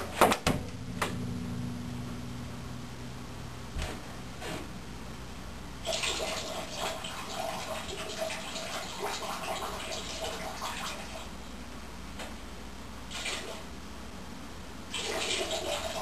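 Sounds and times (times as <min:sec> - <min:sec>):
water running and splashing: 0:05.8 - 0:11.3, 0:14.9 - 0:16.0.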